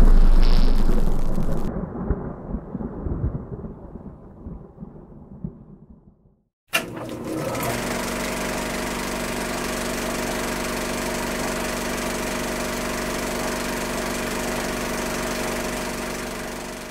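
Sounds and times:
film projector whirring: 0:06.7 - 0:16.9.

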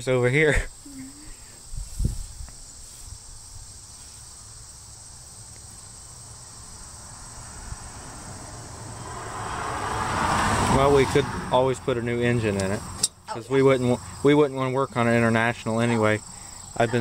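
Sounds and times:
crickets trilling: 0:00.0 - 0:17.0
wind rumble on microphone: 0:01.6 - 0:03.8.

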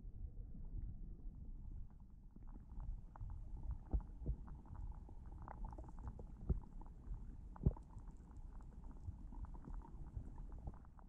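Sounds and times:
underwater rumble of moving water: 0:00.0 - 0:11.0
small ticks and clicks: 0:02.4 - 0:11.0.

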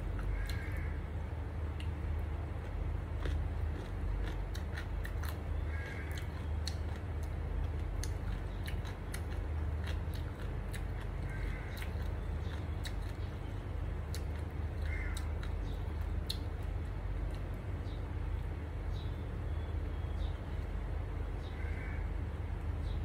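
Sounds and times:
steady low hum: 0:00.0 - 0:23.0
close chewing: 0:02.6 - 0:17.6.

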